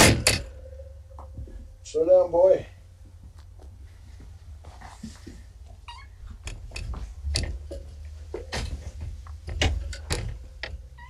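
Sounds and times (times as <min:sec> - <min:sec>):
sharp knocks and thumps: 0:00.0 - 0:01.7, 0:06.2 - 0:11.0
steady low hum: 0:00.0 - 0:11.0.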